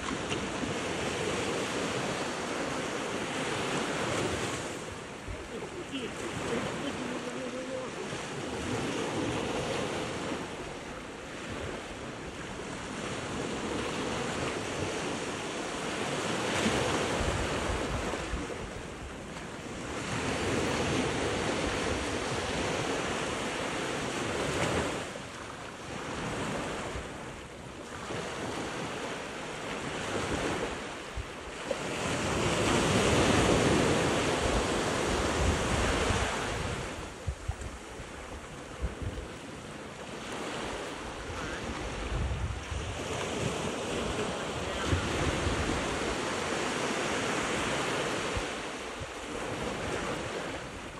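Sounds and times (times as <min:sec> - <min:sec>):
wind buffeting microphone: 0:00.0 - 0:25.1, 0:28.4 - 0:46.6
waves breaking on beach: 0:00.0 - 0:50.9.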